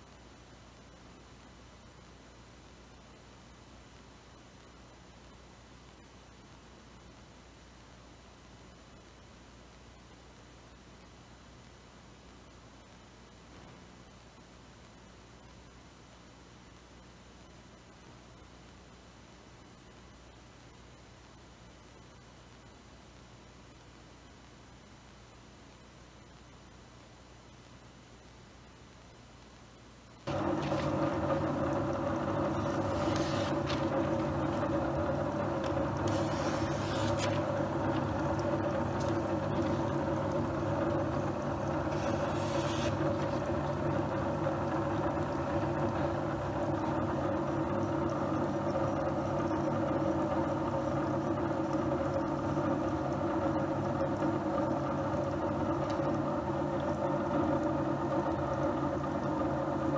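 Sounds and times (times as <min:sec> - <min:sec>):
knife slicing through paper: 0:36.1 - 0:37.4
sharpening machine motor humming: 0:41.8 - 0:43.2.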